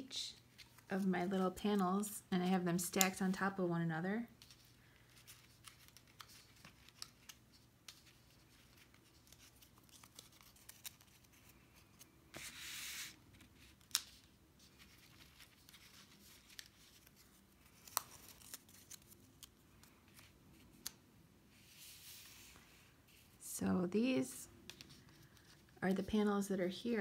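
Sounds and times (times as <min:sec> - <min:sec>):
paper rustle: 0:04.4 - 0:23.4.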